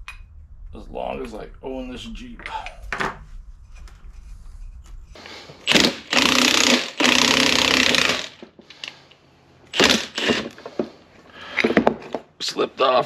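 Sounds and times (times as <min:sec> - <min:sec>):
impact wrench hammering: 0:05.6 - 0:08.5.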